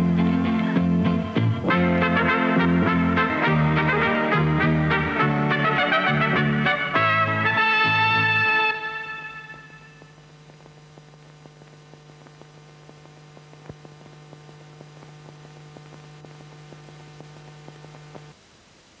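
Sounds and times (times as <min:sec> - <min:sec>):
steady electrical hum: 0:00.0 - 0:19.0
faint ticks: 0:10.0 - 0:18.4.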